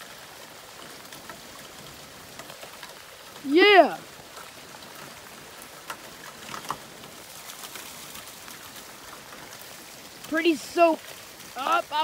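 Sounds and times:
heavy rain on pavement and foliage: 0.0 - 12.0.

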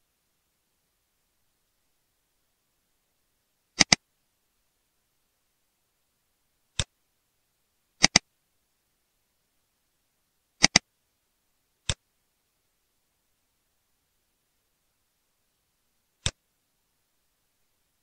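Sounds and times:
computer mouse button clicks: 3.8 - 4.0, 8.0 - 8.2, 10.6 - 10.8.

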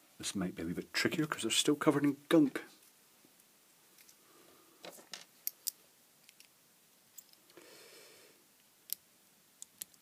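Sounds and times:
metal tool clicks and taps: 9.6 - 10.0.

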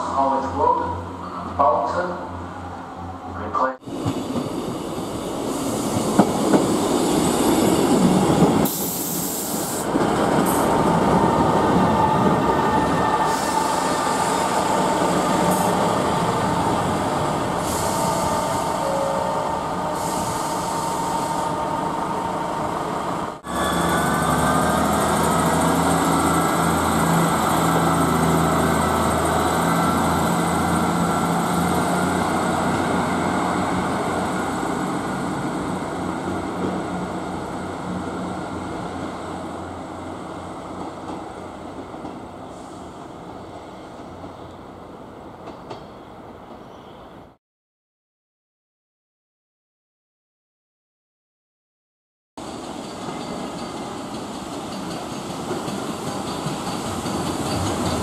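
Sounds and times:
train wheels rumbling on rails: 3.8 - 44.6, 52.4 - 58.0.

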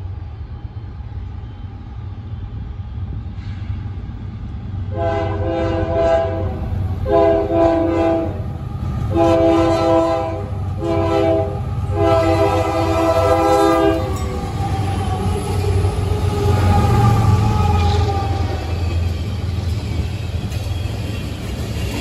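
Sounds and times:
diesel locomotives rumbling: 0.0 - 22.0
locomotive air horn blasts: 4.9 - 8.4, 9.1 - 14.3.

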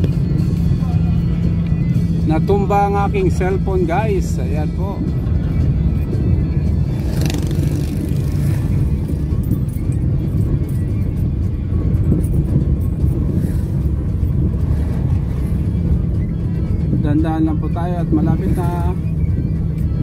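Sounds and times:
car engine and tyres rumbling: 0.0 - 20.0
music playing: 0.0 - 20.0.

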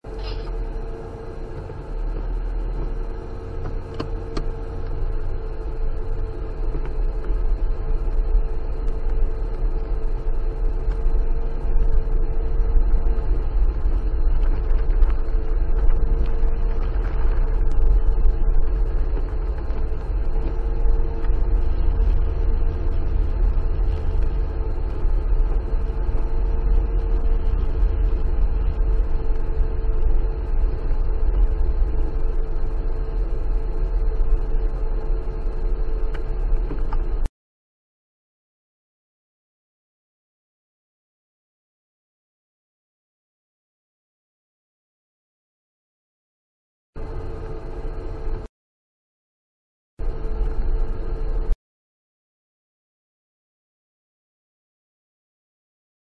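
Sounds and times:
car engine rumbling under load: 0.0 - 37.3, 47.0 - 48.5, 50.0 - 51.6.

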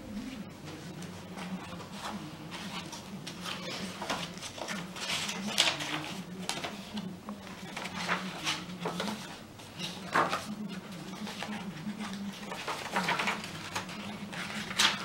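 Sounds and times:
paper pages rustling: 0.6 - 15.0.

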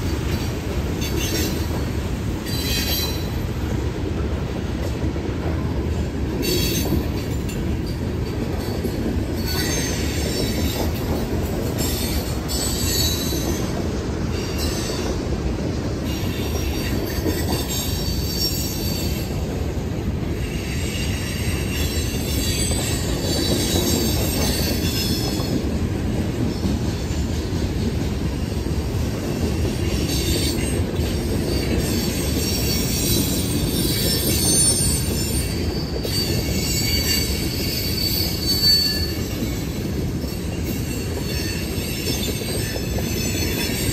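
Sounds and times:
train cars rumbling on rails: 0.0 - 43.9
wheel squeal: 31.5 - 43.9.

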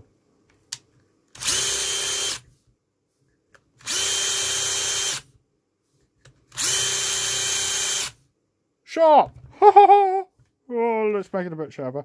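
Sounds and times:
drill motor whine: 1.4 - 2.4, 3.8 - 5.2, 6.6 - 8.2.

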